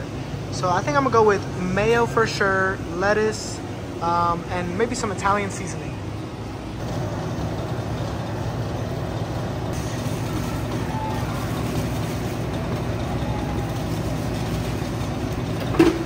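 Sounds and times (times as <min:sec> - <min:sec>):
low machinery rumble: 0:00.0 - 0:16.0
faint voices: 0:09.8 - 0:15.0.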